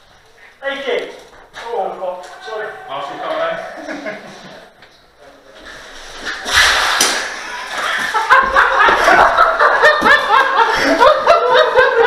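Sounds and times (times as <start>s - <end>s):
hearty laughter: 3.6s - 4.8s, 7.3s - 12.0s.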